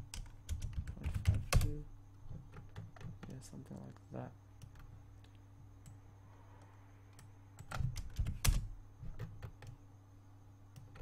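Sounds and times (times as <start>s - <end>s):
keyboard keystrokes: 0.0s - 1.8s, 7.1s - 9.8s
low hum: 3.9s - 9.1s.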